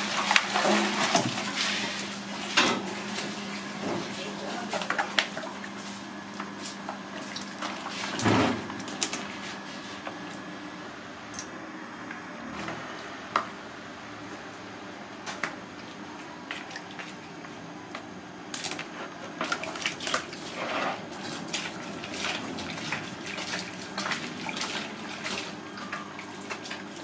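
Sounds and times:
water splashing in plastic basin: 0.0s - 9.3s, 18.6s - 27.0s.

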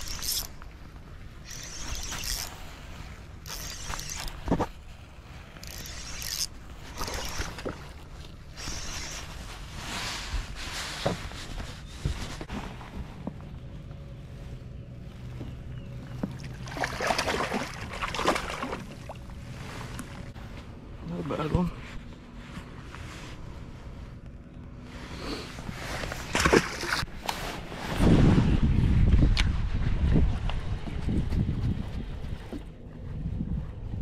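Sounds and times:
fishing reel scraping and clicking: 0.0s - 0.6s, 1.4s - 2.6s, 3.4s - 4.4s, 5.6s - 7.6s, 8.5s - 9.3s.

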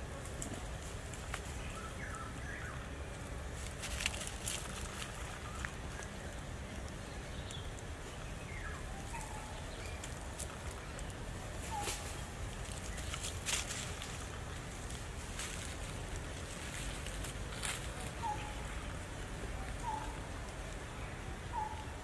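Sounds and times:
dry leaves crackling: 0.0s - 22.0s
faint squeaky calls: 19.7s - 20.4s, 21.4s - 22.0s.

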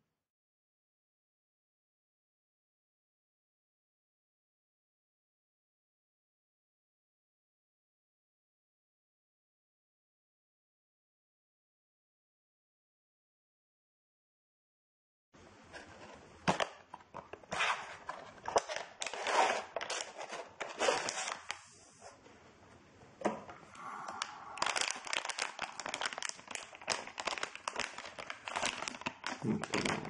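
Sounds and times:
cardboard box being opened: 17.6s - 21.5s
plastic bag crinkling: 17.9s - 21.6s, 24.1s - 30.0s.

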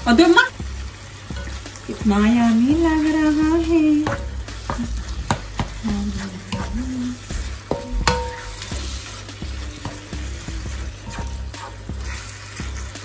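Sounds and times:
meat sizzling in a pan: 0.0s - 13.0s
spatula scraping a pan: 1.2s - 13.0s
spatula knocking against pan: 4.0s - 8.9s, 11.0s - 11.8s.

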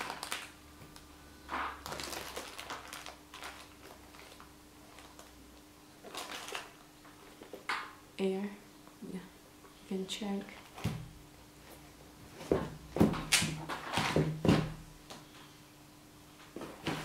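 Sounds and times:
plastic wrapping crinkle: 0.0s - 7.8s.

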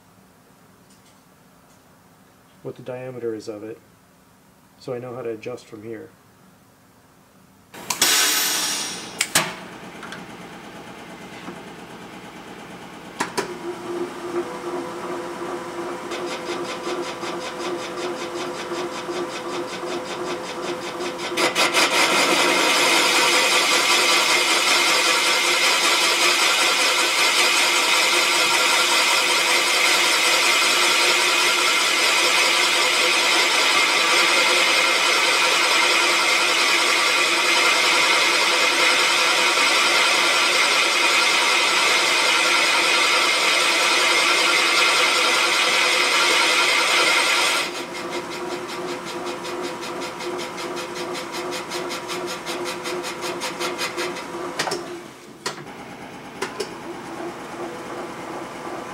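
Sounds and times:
high-pitched whirring grind: 16.0s - 54.6s.

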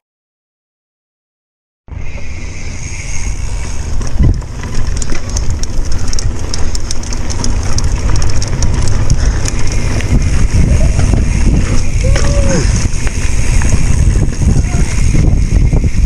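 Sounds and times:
bike rattling clicks: 2.2s - 16.0s
wind buffeting microphone: 3.3s - 16.0s
tyre rumble: 3.6s - 16.0s.

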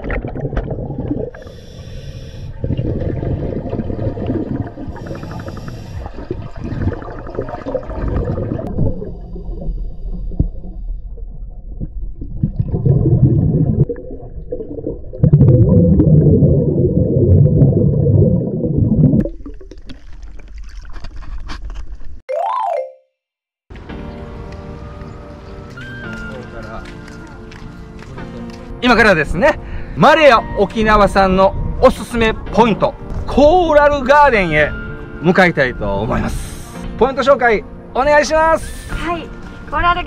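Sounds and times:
underwater bubbling: 0.0s - 20.9s.

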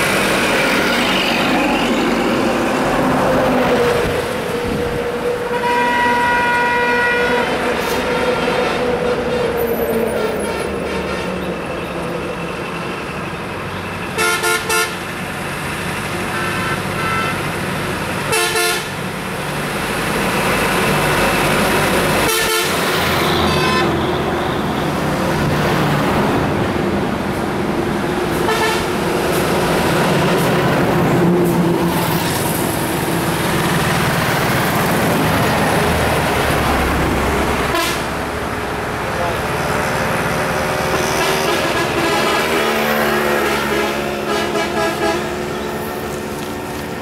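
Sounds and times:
heavy road traffic passing: 0.0s - 47.0s
vehicle horns tooting: 5.5s - 7.6s, 14.2s - 15.0s, 16.2s - 17.5s, 18.3s - 18.9s, 22.2s - 24.3s, 37.7s - 38.1s, 43.4s - 45.4s.

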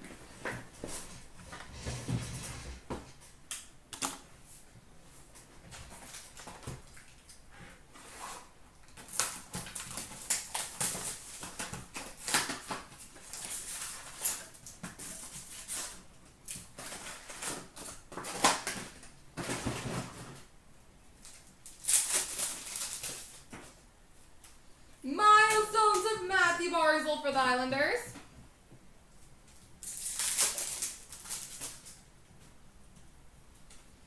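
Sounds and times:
cardboard and wrappers crinkling: 8.9s - 20.5s, 21.2s - 23.8s, 29.8s - 32.0s.

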